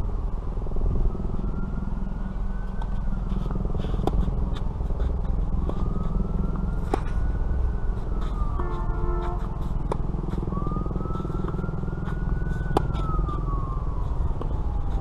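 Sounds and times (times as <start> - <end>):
wind buffeting microphone: 0.0 - 15.0
tennis racket hitting ball: 3.8 - 7.2, 8.2 - 13.4.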